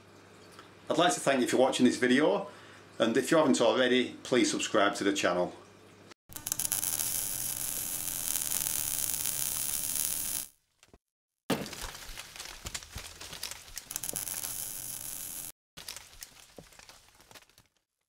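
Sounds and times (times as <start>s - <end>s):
crackling with clicks: 6.3s - 10.5s, 12.4s - 16.0s.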